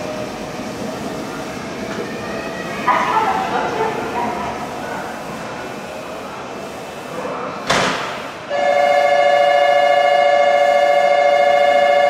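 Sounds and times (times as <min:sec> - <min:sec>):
train horn two-tone blast: 0:08.5 - 0:12.0.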